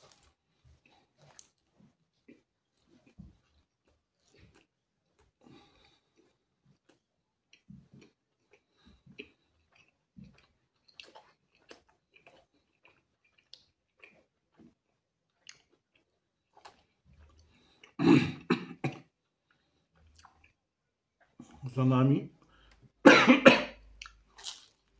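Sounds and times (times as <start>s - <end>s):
person chewing: 0.0s - 21.6s, 23.7s - 24.9s
person coughing: 18.0s - 19.1s, 23.0s - 23.8s.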